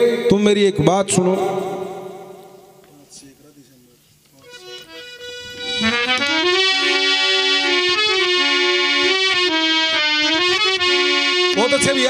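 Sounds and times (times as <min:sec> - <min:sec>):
harmonium melody: 0:04.4 - 0:12.0.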